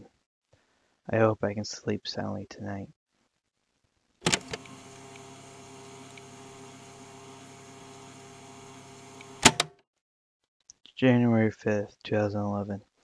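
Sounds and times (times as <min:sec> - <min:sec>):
tape recorder hum and hiss: 0:03.2 - 0:09.7
tape recorder button click: 0:09.2 - 0:09.7.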